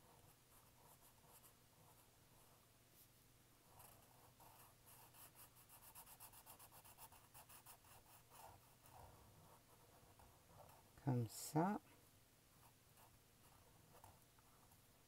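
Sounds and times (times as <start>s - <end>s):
marker scribbling on paper: 3.8s - 10.8s.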